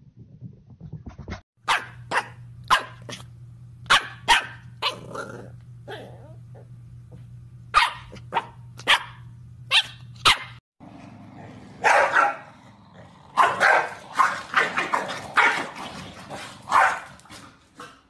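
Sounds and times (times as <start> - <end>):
dogs barking: 1.7 - 3.2, 3.9 - 5.1, 7.8 - 10.6, 11.8 - 12.6, 13.2 - 15.8, 16.4 - 17.2.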